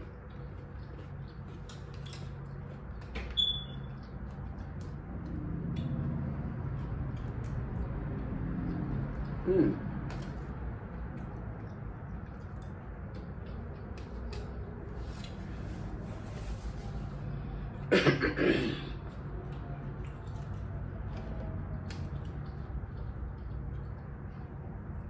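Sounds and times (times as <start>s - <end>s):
low fan hum: 0.0s - 25.0s
woman coughing: 17.9s - 19.0s.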